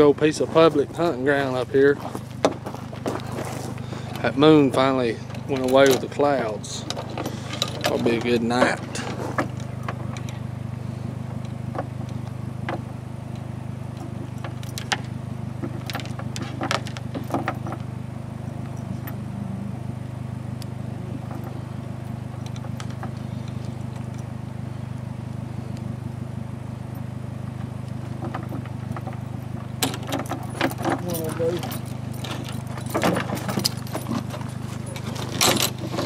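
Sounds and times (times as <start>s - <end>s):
pickup engine idling: 0.0s - 36.0s
metal latch and chain clinking: 4.2s - 10.4s, 13.4s - 15.1s, 15.7s - 17.8s, 18.5s - 19.2s, 28.3s - 36.0s.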